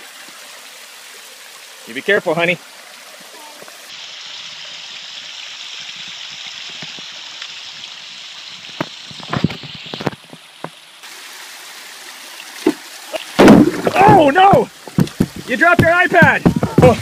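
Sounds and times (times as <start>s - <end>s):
water splashing over rocks: 0.0s - 17.0s
short knocks: 13.4s - 17.0s.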